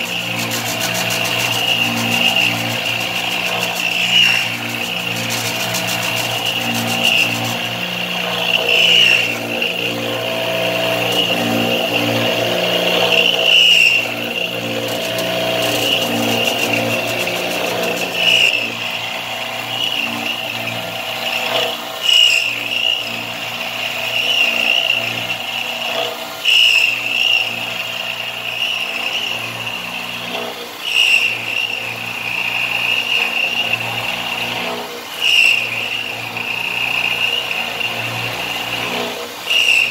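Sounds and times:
low hum of spindle and drives: 0.0s - 22.0s
high cutting whine: 0.0s - 39.9s.

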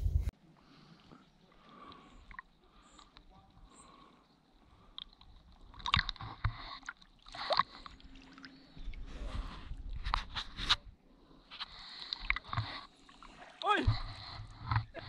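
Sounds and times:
low rumble: 0.0s - 0.3s
paddle splashing water: 11.5s - 15.0s.

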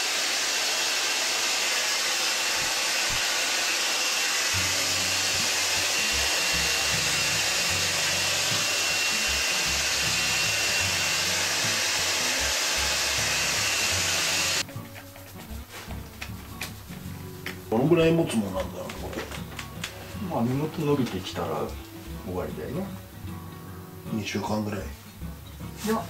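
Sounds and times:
hair dryer blowing: 0.0s - 14.7s.

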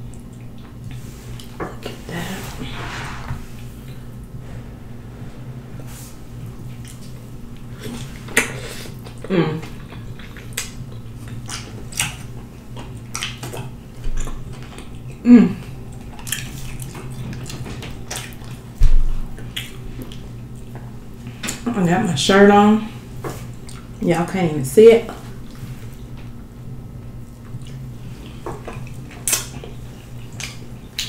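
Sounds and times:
wet chewing and lip-smacking: 7.8s - 18.7s, 19.3s - 20.9s, 23.3s - 24.0s, 27.2s - 31.0s.

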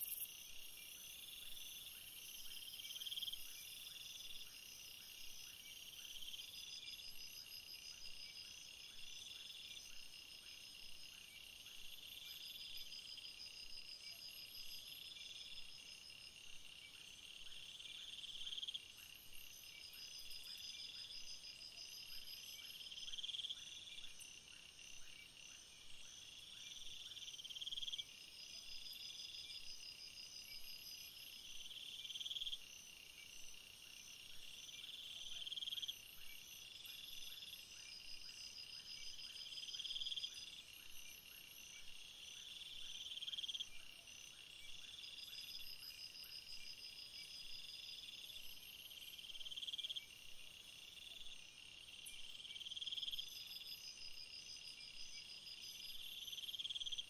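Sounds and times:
insects trilling: 0.0s - 7.7s.

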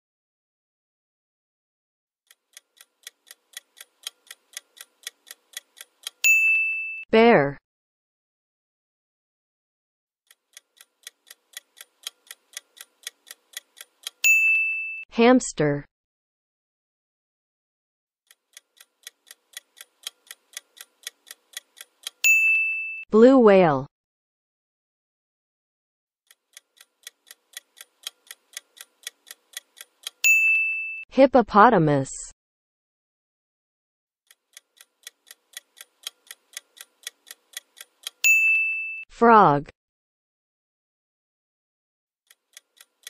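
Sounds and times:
clock ticking: 2.3s - 6.6s, 10.3s - 14.6s, 18.3s - 22.6s, 26.3s - 30.4s, 34.3s - 38.6s, 42.3s - 43.0s
bright ding: 6.3s - 7.0s, 14.3s - 15.0s, 22.3s - 23.0s, 30.3s - 31.0s, 38.3s - 39.0s.

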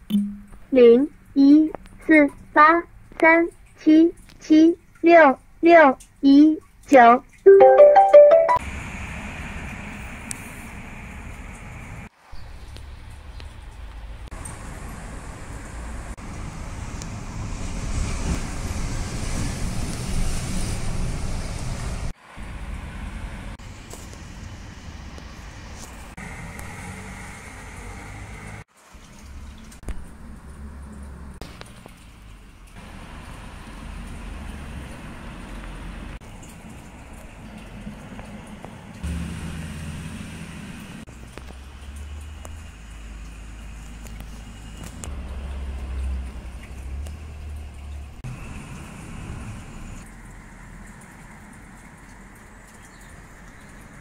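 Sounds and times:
distant road traffic rumble: 8.6s - 54.0s
hiss: 16.4s - 22.1s.

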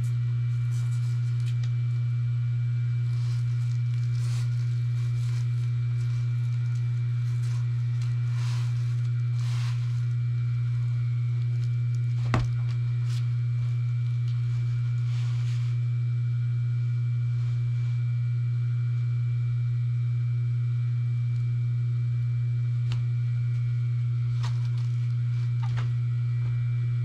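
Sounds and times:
electric motor humming: 0.0s - 19.9s, 21.0s - 27.0s.

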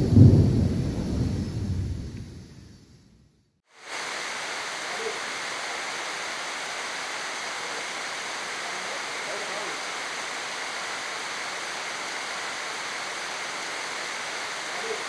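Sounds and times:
pouring rain: 0.0s - 2.9s, 3.7s - 15.0s
thunder rumble: 0.0s - 3.2s
river running over rocks: 3.8s - 15.0s.

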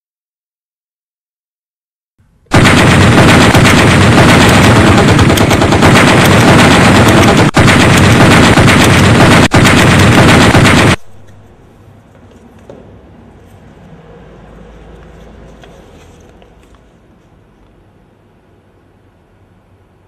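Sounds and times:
automatic rifle fire: 2.5s - 11.6s.

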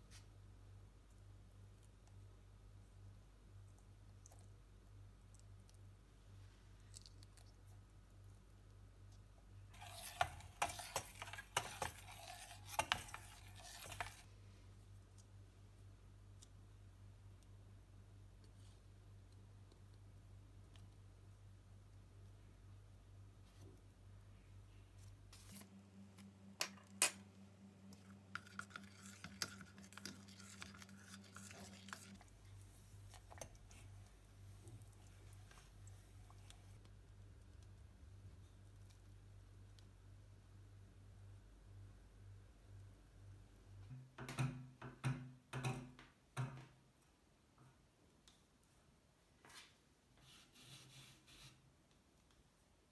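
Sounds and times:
metal spoon scraping steel bowl: 9.8s - 14.2s, 27.9s - 32.3s.

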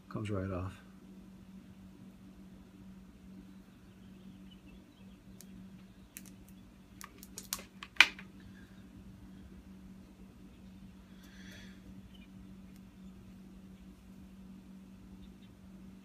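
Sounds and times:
steady low hum: 0.0s - 16.0s
plastic clicks and snaps: 6.1s - 8.3s.

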